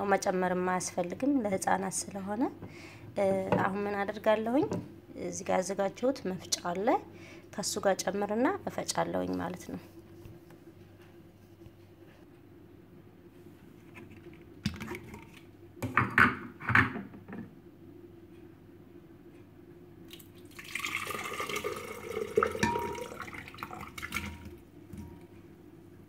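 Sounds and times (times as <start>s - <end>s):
food and water splashing into jar: 20.1s - 25.1s.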